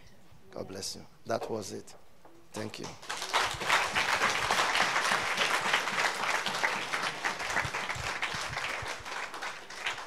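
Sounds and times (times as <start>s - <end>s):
congregation applauding: 2.8s - 10.0s.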